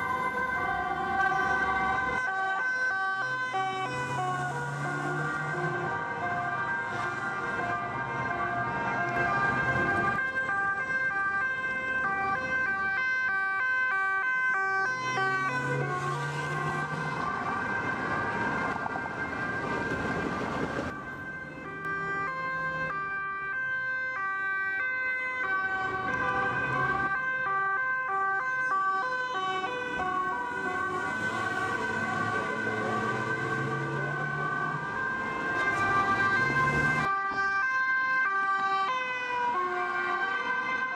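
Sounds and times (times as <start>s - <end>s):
traffic and tyre noise: 0.0s - 40.9s
two-tone police sirens: 0.0s - 40.9s.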